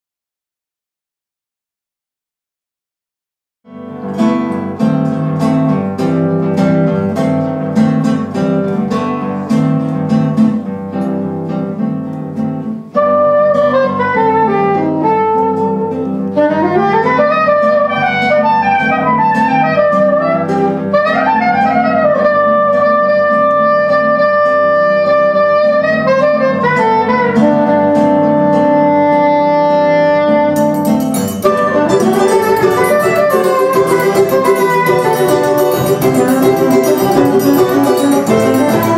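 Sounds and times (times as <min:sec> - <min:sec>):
plucked guitar chords: 0:03.7 - 0:38.9
soprano saxophone melody: 0:12.9 - 0:38.9
bright percussion: 0:30.6 - 0:38.9.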